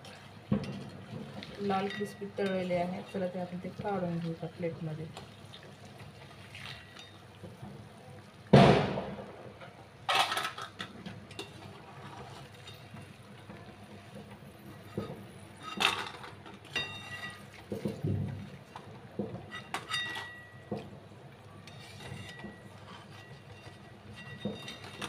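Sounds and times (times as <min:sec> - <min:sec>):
steel spoon scraping metal pan: 0:19.5 - 0:20.5, 0:21.7 - 0:25.0.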